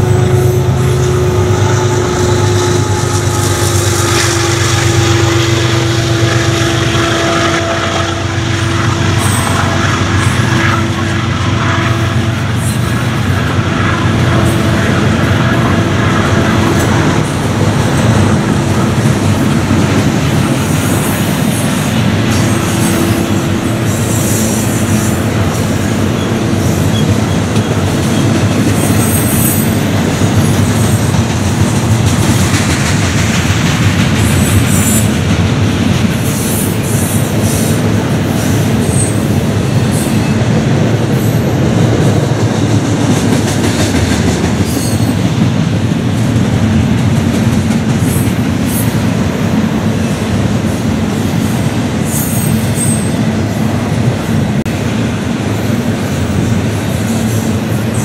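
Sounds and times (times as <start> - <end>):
steel wheels rumbling on rail: 0.0 - 58.0.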